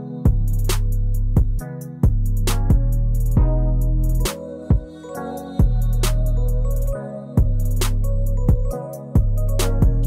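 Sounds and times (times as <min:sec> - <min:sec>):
kick drum beat: 0:00.3 - 0:00.5, 0:01.4 - 0:03.6, 0:07.4 - 0:07.6, 0:08.4 - 0:10.0
deep bass notes: 0:00.3 - 0:04.3
ticking hi-hats: 0:00.3 - 0:10.0.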